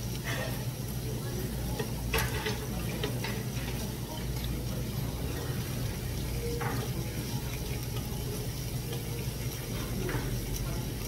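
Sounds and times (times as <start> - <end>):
meat sizzling on grill plate: 0.0 - 11.0.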